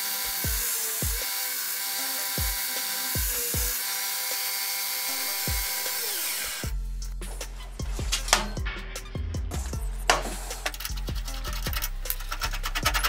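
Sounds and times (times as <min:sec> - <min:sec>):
belt grinder sanding metal: 0:00.0 - 0:06.7, 0:10.1 - 0:13.0
background music with steady beat: 0:00.0 - 0:13.0.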